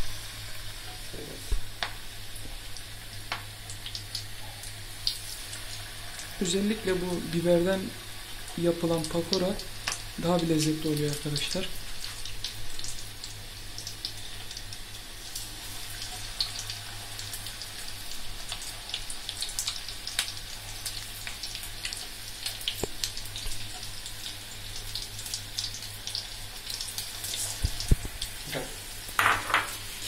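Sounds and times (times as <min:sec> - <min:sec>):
deep-frying sizzle with pops: 0:00.0 - 0:30.0.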